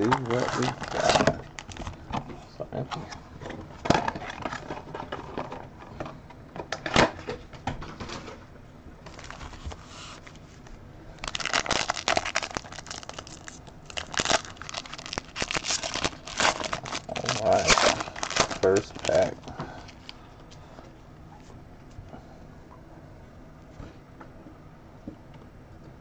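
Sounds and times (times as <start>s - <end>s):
plastic wrapping crinkling and tearing: 0.0s - 2.0s, 9.1s - 10.4s, 11.2s - 20.2s.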